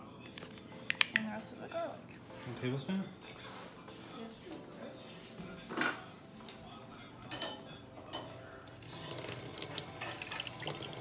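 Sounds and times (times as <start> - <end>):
dishes and utensils clinking: 7.2 - 8.4, 9.7 - 10.9.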